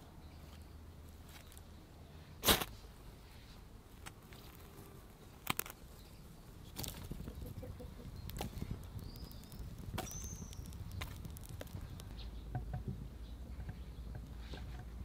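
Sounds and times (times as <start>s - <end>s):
fire crackling and popping: 6.6s - 12.2s.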